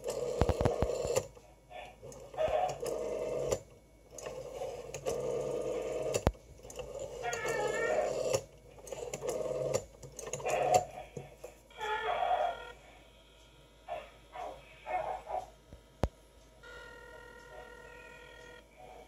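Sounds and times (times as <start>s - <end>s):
rotary dial clicks: 0.0s - 1.4s, 2.0s - 11.3s
rotary dial whirring: 0.0s - 19.0s.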